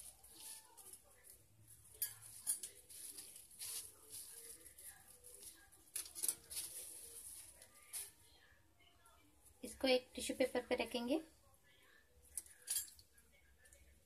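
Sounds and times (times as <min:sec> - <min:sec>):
plastic wrap crinkling: 0:00.0 - 0:08.2.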